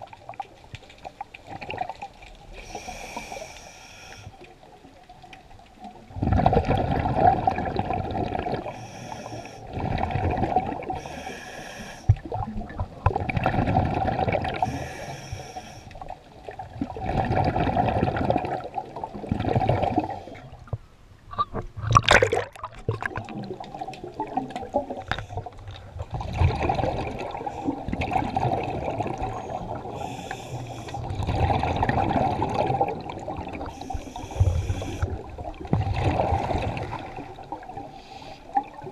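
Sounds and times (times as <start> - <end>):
exhaled bubbles underwater: 0.0 - 3.5, 4.4 - 38.9
hissing inhalations: 2.6 - 4.3, 8.7 - 9.6, 11.0 - 12.1, 14.6 - 16.0, 29.4 - 31.0, 33.7 - 35.2.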